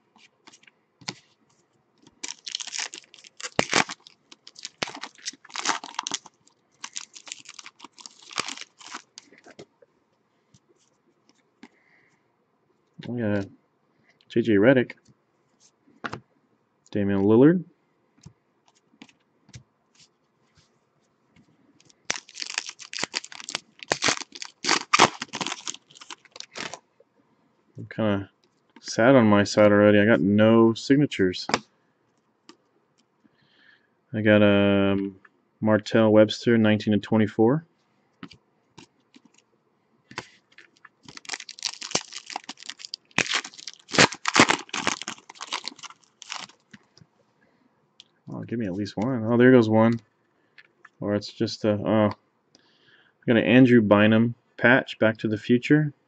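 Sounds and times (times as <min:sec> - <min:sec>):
cards ticking: 0:02.0 - 0:09.3, 0:21.8 - 0:26.8
foil pack tearing and crinkling: 0:02.2 - 0:09.3, 0:22.0 - 0:26.8, 0:41.0 - 0:46.7.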